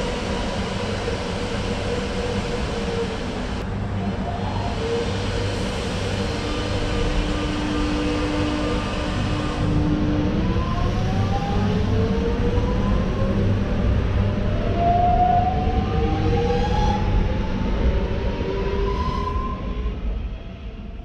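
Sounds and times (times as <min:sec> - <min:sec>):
wheels rumbling on rails: 0:00.0 - 0:21.0.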